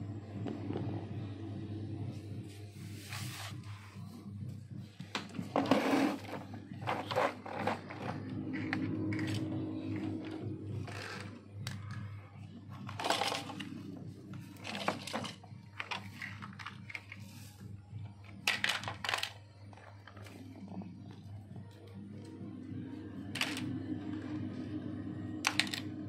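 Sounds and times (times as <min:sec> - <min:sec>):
low steady hum: 0:00.0 - 0:26.0
toy cars clicking and rattling: 0:18.4 - 0:19.4.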